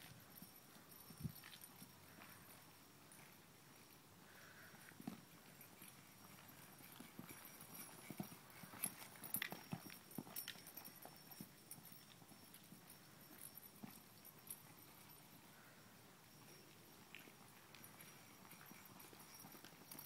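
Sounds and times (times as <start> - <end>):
horse hoofbeats on soft dirt: 0.0 - 20.0.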